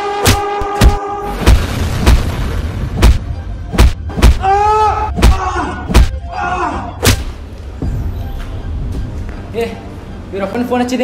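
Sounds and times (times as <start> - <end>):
heavy punch thuds: 3.0 - 4.4, 5.2 - 6.2
person crying out in pain: 4.4 - 7.0.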